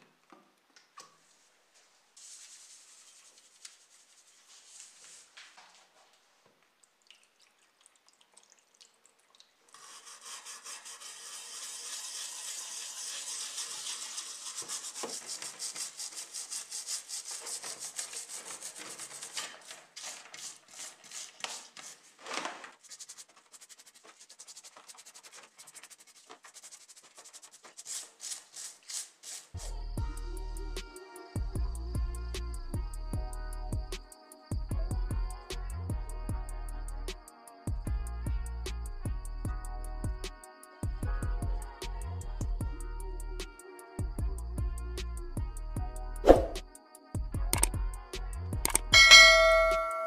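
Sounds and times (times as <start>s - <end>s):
stiff brush scrubbing metal: 9.8s - 22.1s, 22.8s - 29.6s.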